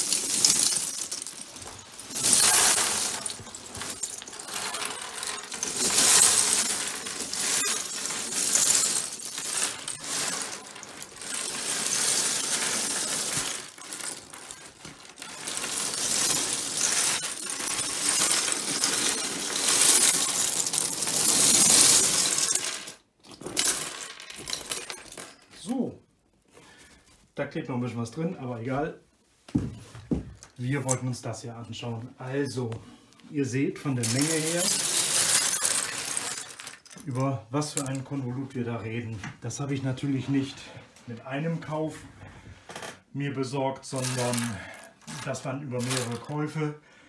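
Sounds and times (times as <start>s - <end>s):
plastic toy parts clattering on wood: 0.0s - 25.7s, 34.0s - 38.2s, 43.9s - 46.4s.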